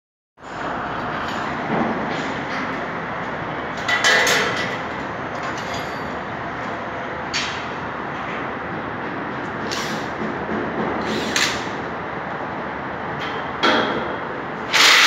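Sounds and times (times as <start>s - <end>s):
construction hoist running: 0.4s - 15.0s
metallic clanks and rattles: 3.8s - 6.3s.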